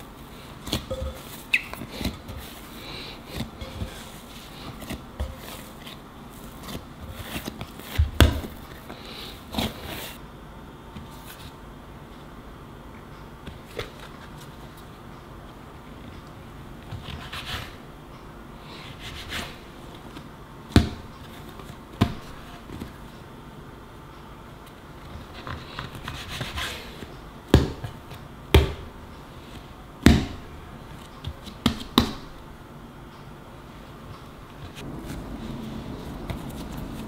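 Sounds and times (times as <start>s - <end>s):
hands pressing and scraping dough: 0.6s - 10.2s, 25.0s - 27.9s.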